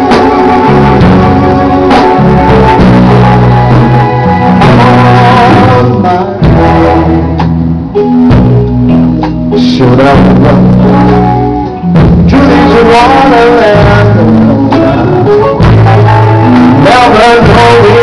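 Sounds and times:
electric guitars: 0.0 - 18.0
keyboard: 0.0 - 18.0
sustained bass notes: 0.0 - 18.0
man singing into microphone: 4.4 - 7.4, 9.5 - 11.4, 12.2 - 18.0.

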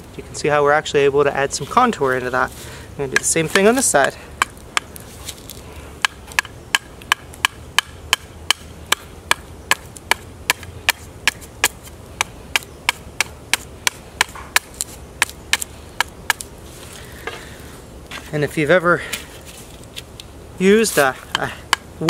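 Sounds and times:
knife chopping wood: 3.1 - 16.5.

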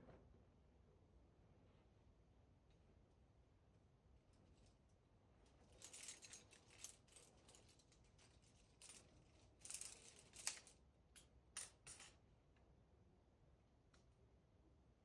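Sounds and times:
climbing gear clinking: 5.7 - 10.8.

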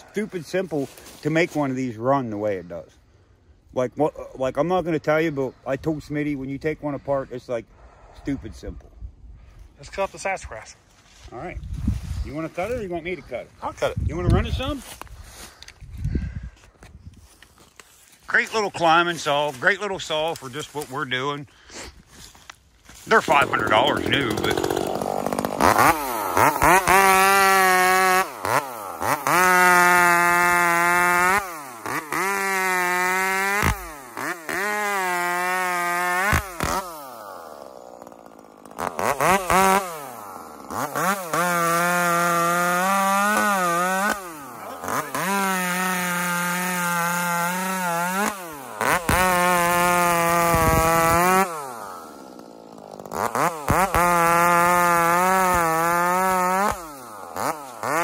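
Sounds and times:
chainsaw revving: 23.0 - 58.0.

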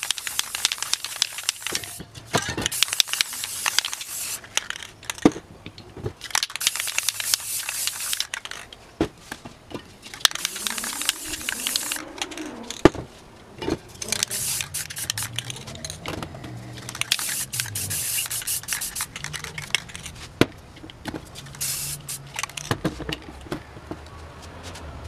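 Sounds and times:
spray paint can hissing: 0.0 - 2.0, 2.7 - 4.4, 6.4 - 8.6, 10.3 - 12.0, 14.0 - 15.9, 16.8 - 20.0, 21.4 - 22.6
spray cans clicking and knocking: 0.0 - 5.4, 6.1 - 8.8, 9.7 - 13.0, 13.6 - 24.0.

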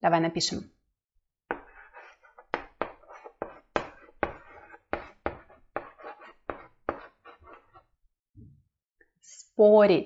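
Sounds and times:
chalk tapping and scraping on blackboard: 1.5 - 7.9.

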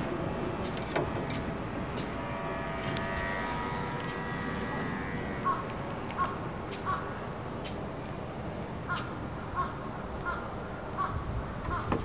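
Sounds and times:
low background hum: 0.0 - 12.0
crow cawing: 2.0 - 7.3, 8.9 - 11.9.

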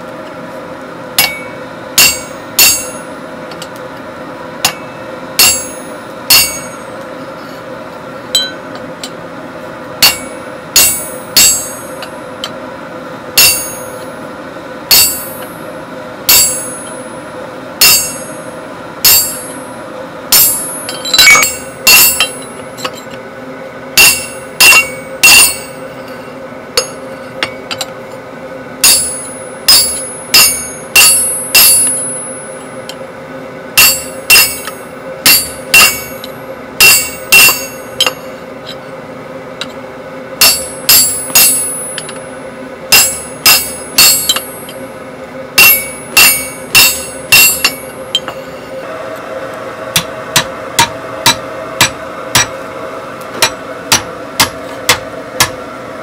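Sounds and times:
hammer striking chisel on metal: 1.2 - 3.7, 4.6 - 6.9, 8.3 - 8.8, 10.0 - 12.6, 13.4 - 14.1, 14.9 - 15.6, 16.3 - 17.2, 17.8 - 19.7, 20.3 - 23.2, 24.0 - 27.9, 28.8 - 33.0, 33.8 - 38.8, 40.4 - 42.3, 42.9 - 44.8, 45.6 - 48.7, 49.9 - 52.6, 53.4 - 55.6.

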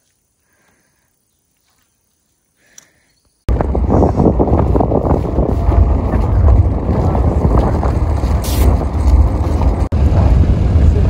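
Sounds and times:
wind buffeting microphone: 3.5 - 11.0.

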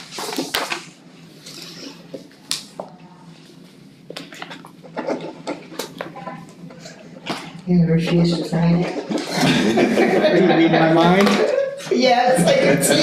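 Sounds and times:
clicks and rustles of papers: 0.0 - 3.0, 4.1 - 7.6
low room hum: 0.0 - 13.0.

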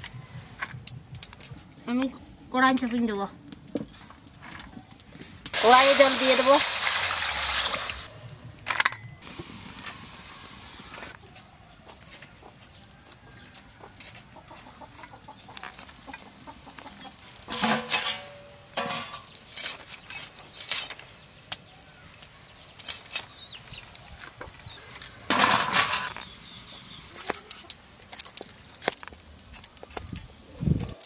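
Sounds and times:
chickens clucking: 12.3 - 17.2.

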